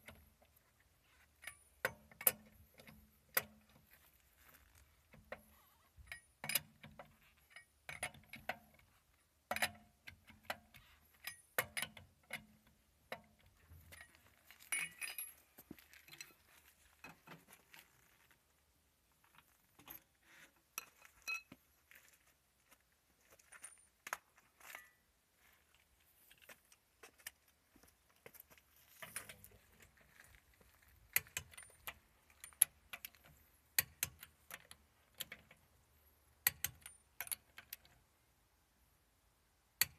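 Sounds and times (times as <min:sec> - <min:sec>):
lug nuts clinking and rattling: 0:00.0 - 0:17.6, 0:28.8 - 0:38.1.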